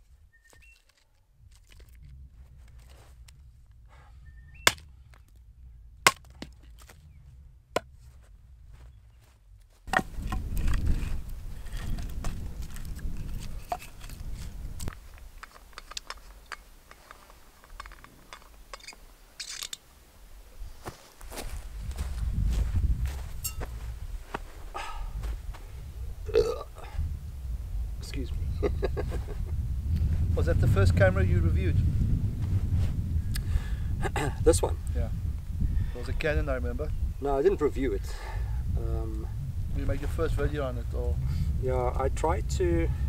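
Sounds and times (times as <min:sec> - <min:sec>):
hatchet chopping kindling: 0:04.6 - 0:05.2, 0:06.0 - 0:07.0
wind on microphone: 0:09.9 - 0:15.4, 0:20.4 - 0:43.0.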